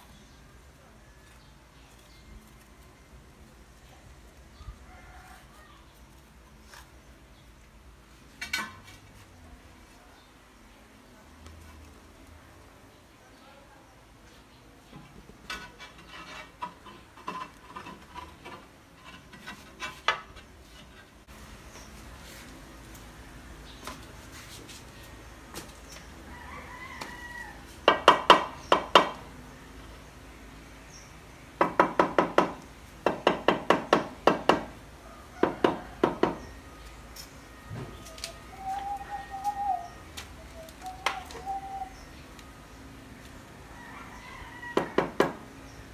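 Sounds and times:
bird call with long note: 0:38.3 - 0:42.1.

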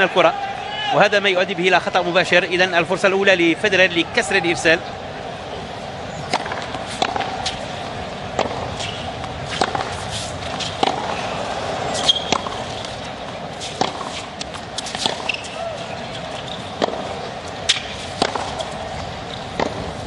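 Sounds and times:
murmur of stadium crowd: 0:00.0 - 0:20.0
racket hitting tennis ball: 0:06.2 - 0:20.0.

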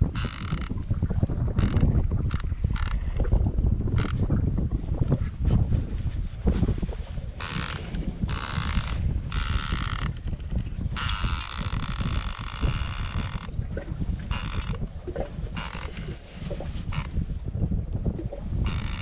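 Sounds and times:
fishing reel drag buzzing: 0:00.0 - 0:00.8, 0:01.6 - 0:03.0, 0:04.0 - 0:04.2, 0:07.4 - 0:10.2, 0:10.9 - 0:13.5, 0:14.2 - 0:14.8, 0:15.5 - 0:17.1, 0:18.6 - 0:19.0
wind rumble on microphone: 0:00.0 - 0:19.0.

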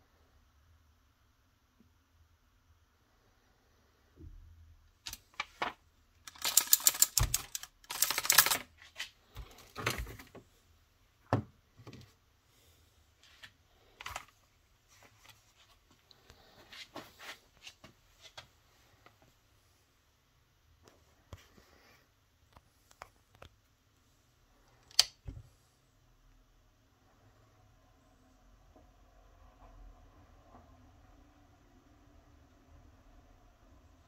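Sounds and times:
rapid clicking: 0:06.3 - 0:08.7.

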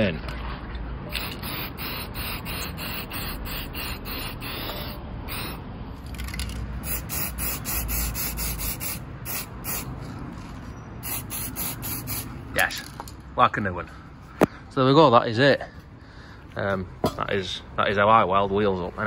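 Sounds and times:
spray paint can hissing: 0:01.1 - 0:10.0, 0:11.0 - 0:12.3.

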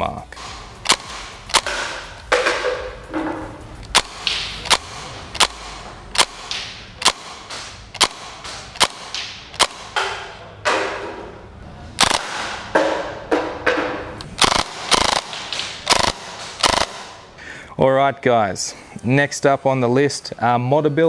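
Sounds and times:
gel blaster shots cracking: 0:14.4 - 0:17.2.

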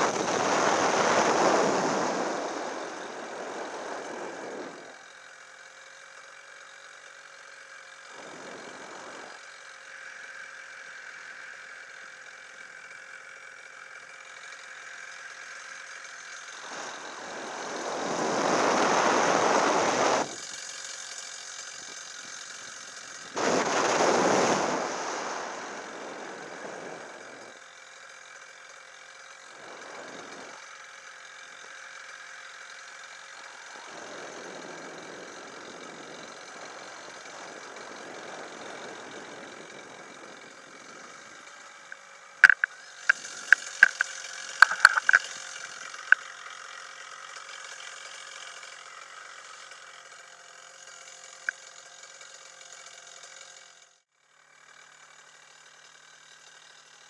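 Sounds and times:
faint steady whine: 0:16.5 - 0:27.6, 0:33.2 - 0:46.2
wind rushing over microphone: 0:16.8 - 0:20.3, 0:23.4 - 0:27.4
sharp clicks and knocks of gear: 0:41.9 - 0:46.4.

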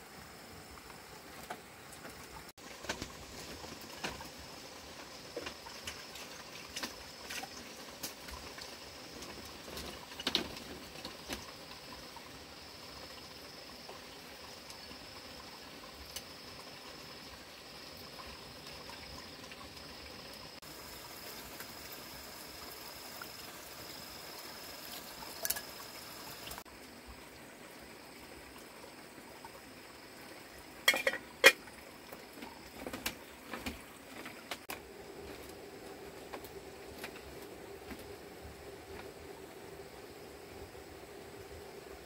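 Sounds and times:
liquid pouring: 0:20.4 - 0:26.6
metal pot and utensils clinking: 0:30.8 - 0:31.6.

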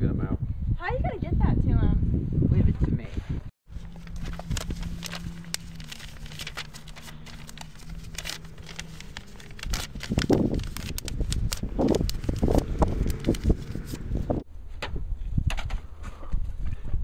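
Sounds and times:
low rumbles: 0:03.7 - 0:14.4
paper rustling and crinkling: 0:03.7 - 0:14.4
steady low hum: 0:03.7 - 0:14.4.

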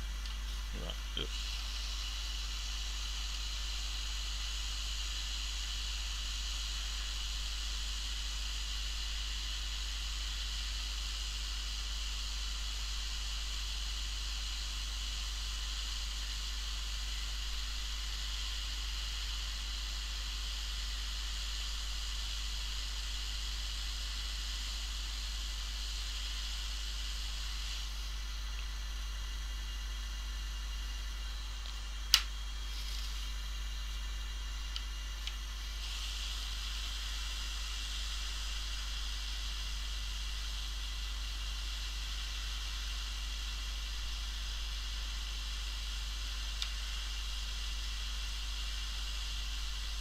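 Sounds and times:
hot air station hissing: 0:00.0 - 0:09.4, 0:24.1 - 0:50.0.

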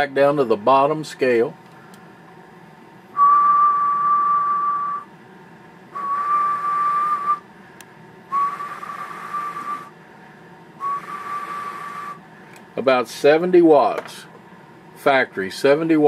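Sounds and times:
person whistling steady note: 0:03.2 - 0:05.1, 0:06.0 - 0:07.4, 0:08.3 - 0:09.9, 0:10.8 - 0:12.2.

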